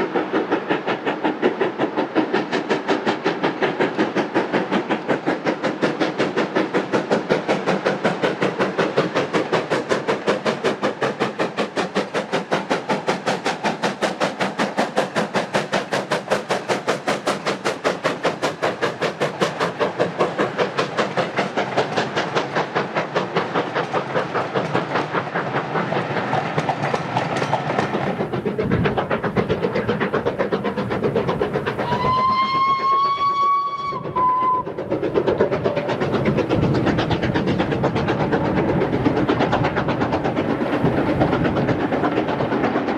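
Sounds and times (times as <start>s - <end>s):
steam locomotive exhaust beats: 0.0s - 42.9s
steam whistle blast: 31.8s - 34.8s.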